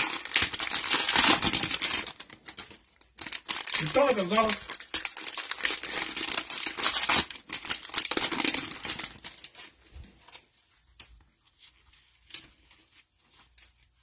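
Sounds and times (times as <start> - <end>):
plastic wrapper tearing and crinkling: 0.0 - 10.5.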